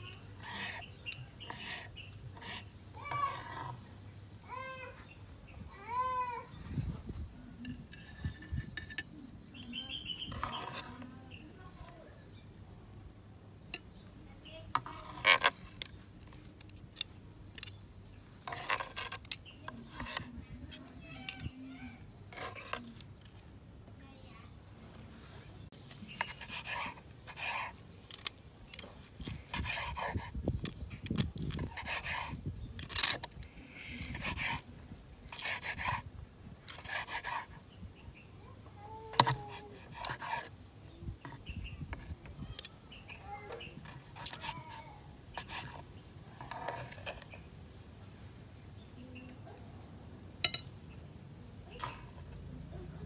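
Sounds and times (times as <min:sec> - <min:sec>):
faint bird chirps: 0:00.0 - 0:13.0, 0:36.8 - 0:53.0
knife cutting meat on board: 0:29.5 - 0:33.2, 0:34.0 - 0:34.7, 0:39.1 - 0:40.5.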